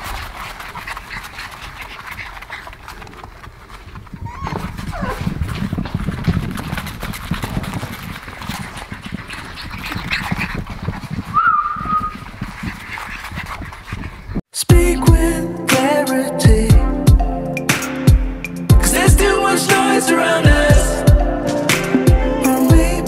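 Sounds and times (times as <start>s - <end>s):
puppy claws clicking on floor: 0.0s - 11.3s
paws thumping: 0.0s - 14.4s
puppies scuffling: 0.0s - 14.4s
puppy squeal: 4.2s - 5.3s, 11.3s - 12.2s.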